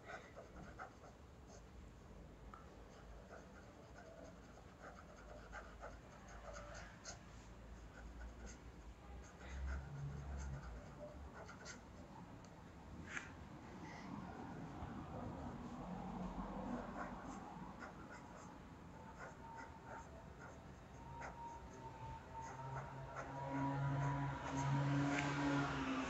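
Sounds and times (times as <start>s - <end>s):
fountain pen scratching paper: 0.1s - 1.6s, 2.9s - 11.9s, 19.1s - 24.7s.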